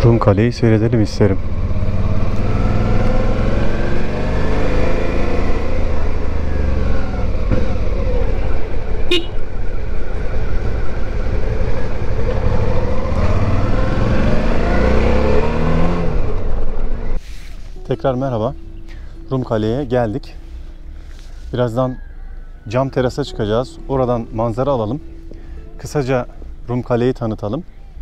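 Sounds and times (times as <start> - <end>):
motorcycle engine running: 0.9 - 14.6.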